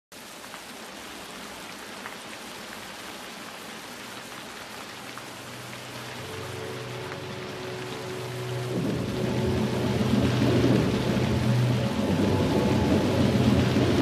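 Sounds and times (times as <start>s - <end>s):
steady rain falling: 0.1s - 14.0s
low steady tones: 5.6s - 14.0s.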